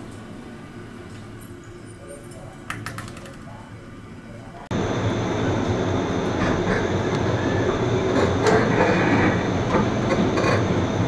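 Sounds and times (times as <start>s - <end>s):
train wheels running: 4.8s - 11.0s.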